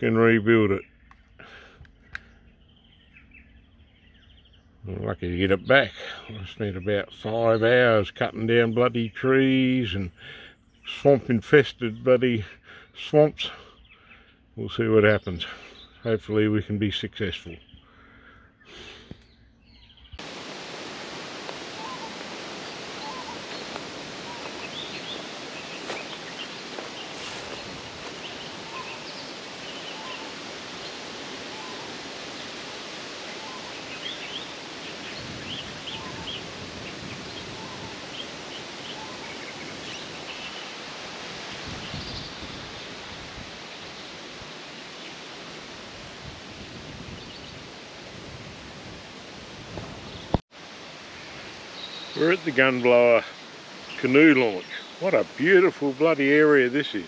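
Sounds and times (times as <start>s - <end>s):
outdoor background hiss: 0.0s - 57.0s
faint bird calls: 9.9s - 11.1s, 12.3s - 16.2s, 17.2s - 20.2s, 21.2s - 45.4s.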